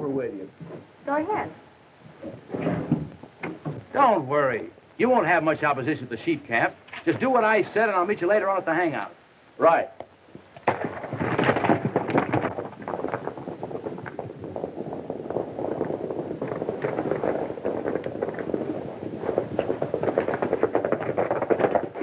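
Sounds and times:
horses galloping on dirt: 0:10.5 - 0:22.0.

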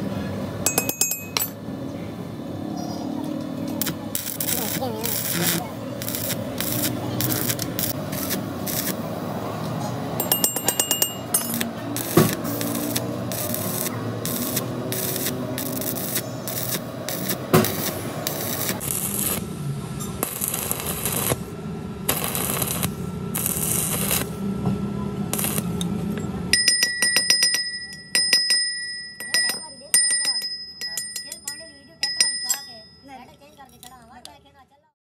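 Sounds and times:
high steady ringing: 0:00.6 - 0:01.7, 0:10.2 - 0:21.4, 0:25.3 - 0:33.9
welding arc crackling: 0:03.6 - 0:09.3, 0:11.2 - 0:24.4, 0:25.3 - 0:25.8.

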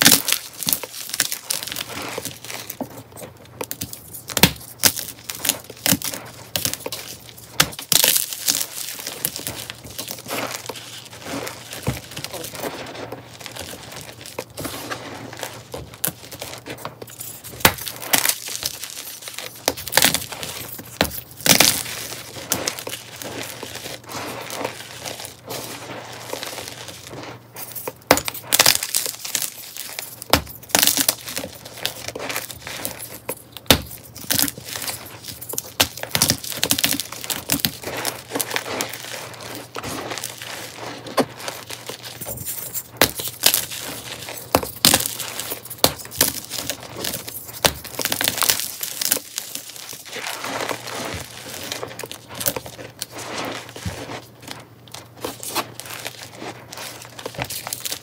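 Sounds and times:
chalk powder crunching: 0:00.0 - 0:58.0
loose powder sifting: 0:08.3 - 0:58.0.

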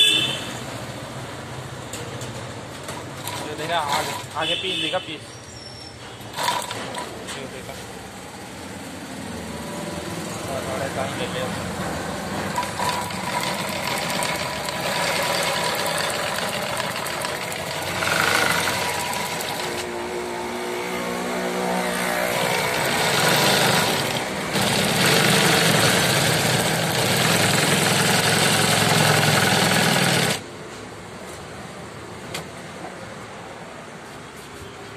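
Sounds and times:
industrial sewing machine running: 0:03.2 - 0:04.2, 0:06.4 - 0:07.1, 0:12.4 - 0:19.9, 0:21.7 - 0:30.4.

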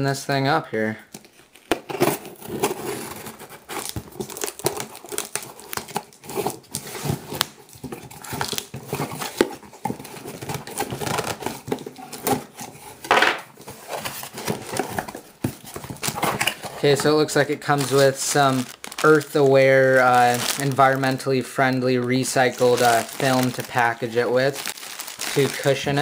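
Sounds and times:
cardboard box tearing: 0:01.7 - 0:12.8, 0:13.7 - 0:16.9, 0:17.7 - 0:21.1, 0:22.1 - 0:26.0
plastic air pillows crinkling: 0:13.7 - 0:26.0.

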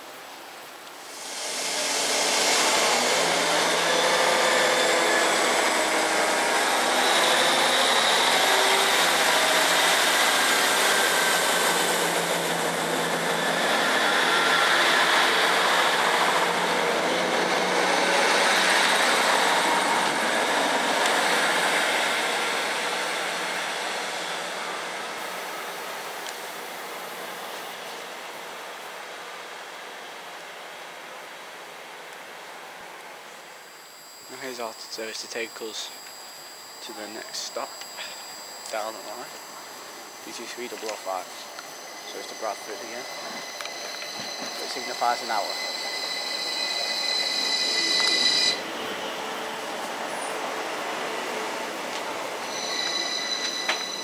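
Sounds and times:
rising whine: 0:01.0 - 0:25.1, 0:33.7 - 0:54.0
diesel train engine: 0:01.0 - 0:29.7, 0:33.2 - 0:54.0
wheels on rails: 0:40.3 - 0:48.6, 0:51.9 - 0:54.0.

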